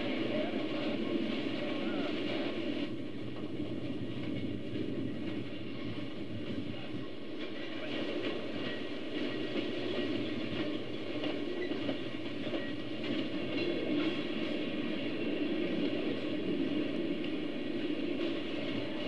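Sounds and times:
model train cars rumbling: 0.0s - 19.0s
wheels clicking over rail joints: 7.0s - 17.5s.

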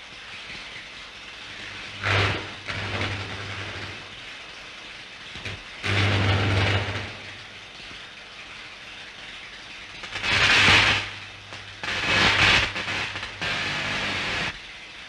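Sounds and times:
low electrical hum: 0.0s - 15.0s
soundtrack hiss: 0.0s - 15.0s
electric sparks crackling: 1.4s - 8.0s, 9.9s - 14.6s.

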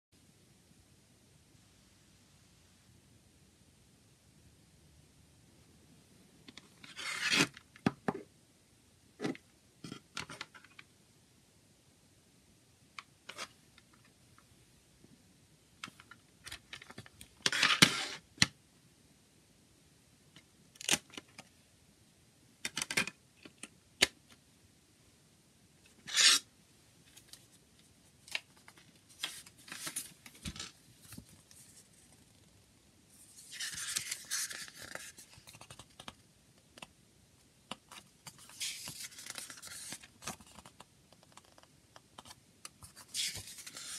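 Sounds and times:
booklet pages flipping: 28.2s - 32.4s, 33.2s - 36.9s, 37.7s - 43.9s
paper inserts rustling: 28.2s - 32.4s, 33.2s - 36.2s, 37.7s - 43.9s.

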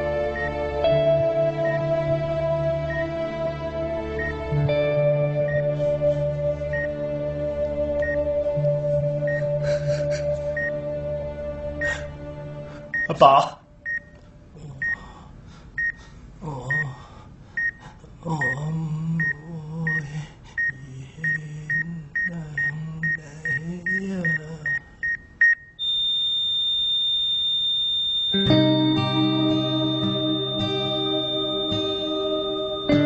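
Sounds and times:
patient monitor beeping: 0.0s - 3.2s, 4.2s - 12.1s, 12.9s - 14.2s, 14.8s - 15.1s, 15.8s - 16.0s, 16.6s - 17.0s, 17.6s - 17.8s, 18.4s - 33.0s
music: 0.0s - 13.2s, 28.4s - 33.0s
continuous flatline tone: 0.0s - 15.1s, 18.4s - 33.0s
man speaking while sobbing: 13.0s - 13.7s, 14.6s - 15.3s, 16.4s - 17.2s, 18.1s - 24.8s.

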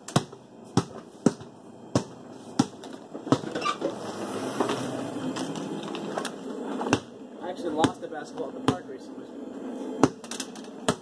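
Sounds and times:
basketball bouncing on hard floor: 0.1s - 3.7s, 6.9s - 7.1s, 7.8s - 8.0s, 10.0s - 10.2s.

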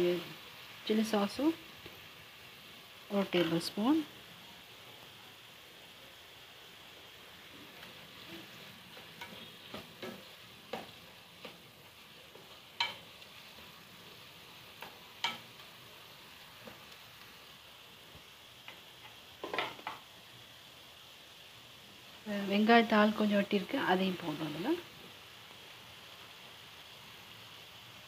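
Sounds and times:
food sizzling in a pan: 0.0s - 28.0s
spatula scraping a pan: 7.7s - 13.7s.

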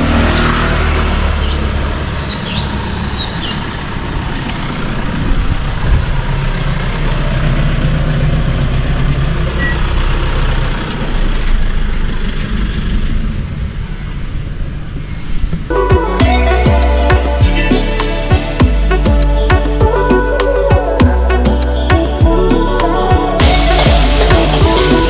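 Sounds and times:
birds chirping: 0.0s - 4.9s
vehicle engine rumbling: 0.0s - 25.0s.

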